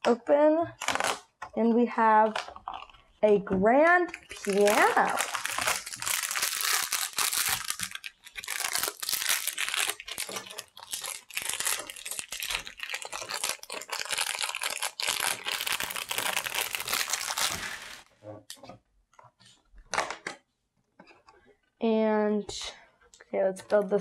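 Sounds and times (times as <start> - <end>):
plastic bag crinkling: 4.1 - 18.1.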